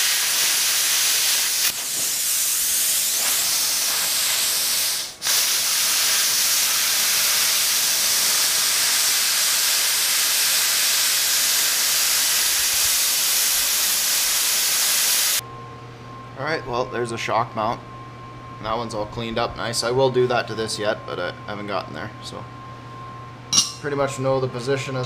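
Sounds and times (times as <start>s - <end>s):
plasma cutter hissing: 0.0s - 15.4s.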